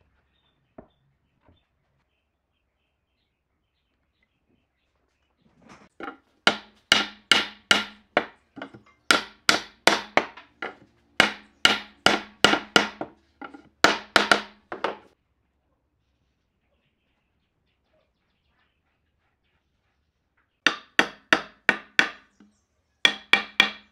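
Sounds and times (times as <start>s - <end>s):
hammer striking wooden board: 6.0s - 15.1s, 20.7s - 22.5s, 23.1s - 23.9s
light hammer taps: 6.0s - 15.1s.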